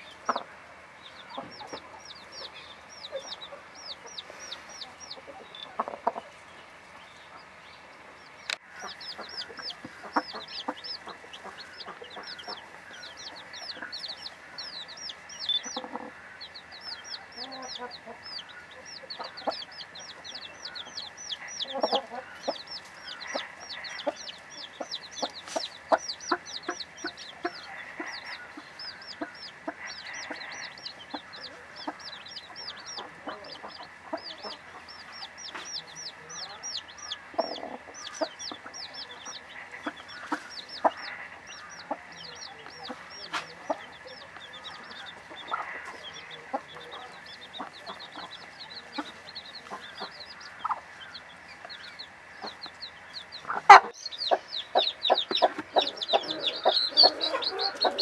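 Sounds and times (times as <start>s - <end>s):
hen clucking softly: 0.0s - 6.6s, 8.6s - 58.0s
chicks peeping: 0.0s - 58.0s.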